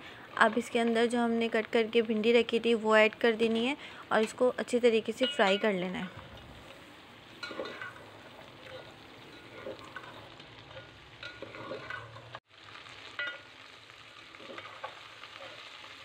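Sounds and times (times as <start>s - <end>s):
food sizzling in hot oil: 0.0s - 16.0s
metal spoon scraping pot: 8.6s - 12.4s.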